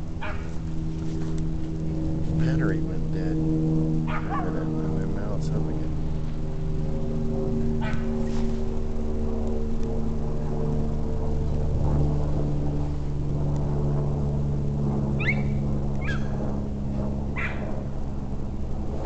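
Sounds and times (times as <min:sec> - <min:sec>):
steady low hum: 0:00.0 - 0:19.0
dog yapping: 0:00.2 - 0:00.6, 0:04.1 - 0:04.6, 0:07.8 - 0:08.2, 0:15.2 - 0:16.3, 0:17.4 - 0:17.7.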